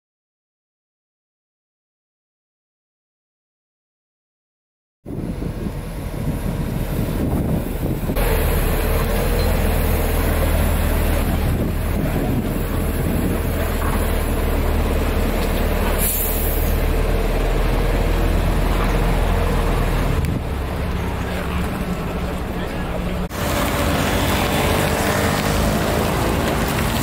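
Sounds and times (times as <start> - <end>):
truck diesel engine rumbling: 5.1 - 27.0
air brake hiss: 16.0 - 16.8.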